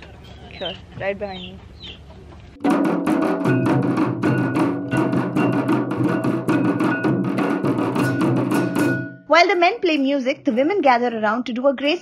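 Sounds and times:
barrel drums beaten with sticks: 2.6s - 12.0s
hand cymbals clashing: 3.5s - 9.2s.

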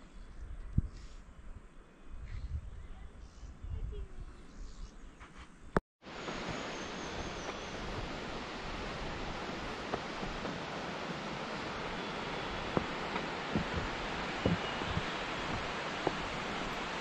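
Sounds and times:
steady rushing noise: 6.1s - 17.0s.

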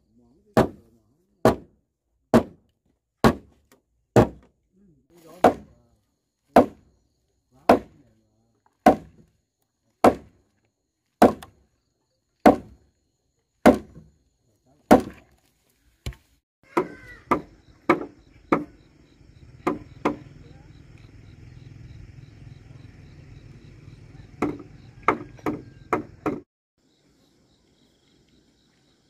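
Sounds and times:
tool striking wood: 1.4s - 1.7s, 2.3s - 2.6s, 3.2s - 3.6s, 4.2s - 4.5s, 5.4s - 5.7s, 6.5s - 6.8s, 7.7s - 8.0s, 8.8s - 9.3s, 10.0s - 10.4s, 11.2s - 11.6s, 12.4s - 12.8s, 13.6s - 14.1s, 14.9s - 15.2s, 16.0s - 18.8s, 19.6s - 20.3s, 24.4s - 26.5s.

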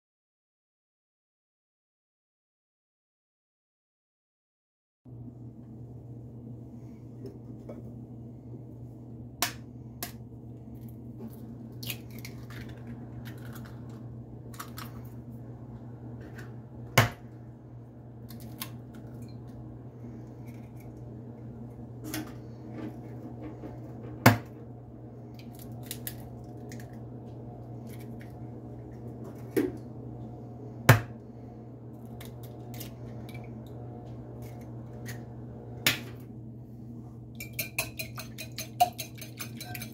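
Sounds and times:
steady low hum: 5.1s - 39.9s.

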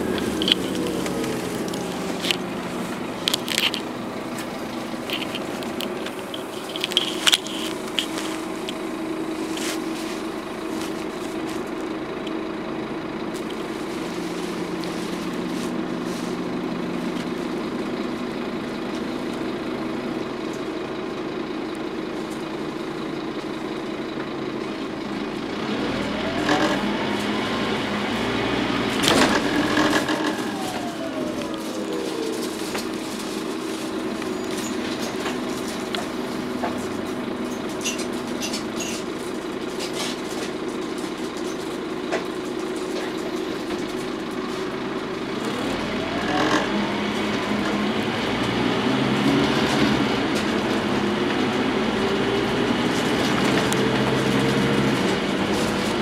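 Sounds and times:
bus diesel engine droning: 0.0s - 56.0s
fittings rattling and clicking: 3.1s - 8.8s.

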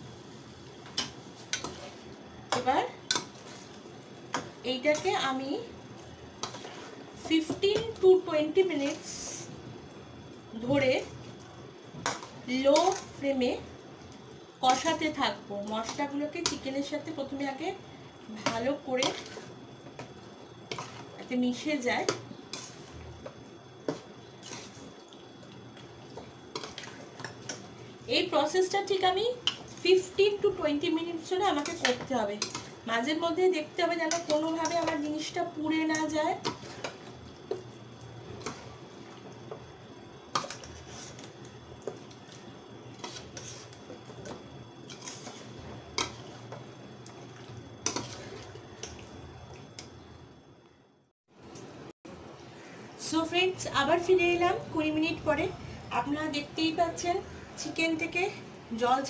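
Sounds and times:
spatula stirring and scraping pan: 0.9s - 5.3s, 6.2s - 9.4s, 12.0s - 13.2s, 14.6s - 17.5s, 18.3s - 25.0s, 25.6s - 49.8s
metal spatula scraping a pan: 19.0s - 19.5s, 42.9s - 43.8s, 44.9s - 46.4s, 47.8s - 48.5s.

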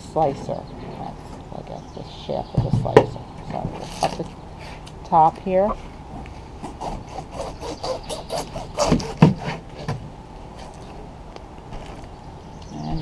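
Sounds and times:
knife sawing through pineapple: 6.6s - 9.6s.

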